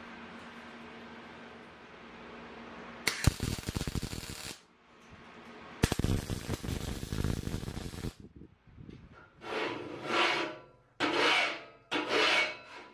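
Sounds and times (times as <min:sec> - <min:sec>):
welding arc crackling: 0:03.0 - 0:04.7, 0:05.8 - 0:08.2.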